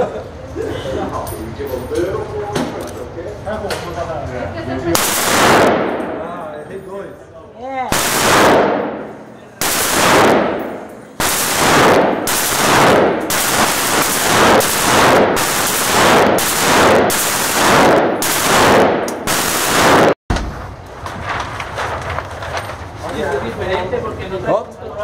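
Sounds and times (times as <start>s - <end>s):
rifle shots echoing: 5.0s - 6.4s, 7.9s - 20.2s.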